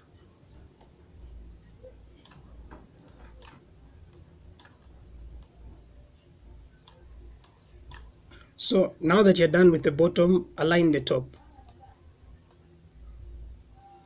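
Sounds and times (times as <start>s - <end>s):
low steady hum: 0.0s - 14.0s
mouse and keyboard clicks: 2.2s - 4.8s, 6.8s - 8.1s.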